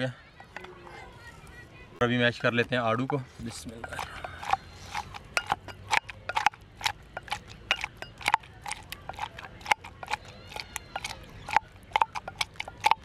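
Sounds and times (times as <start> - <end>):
wooden spoon knocking glass: 3.8 - 6.6, 7.2 - 13.0.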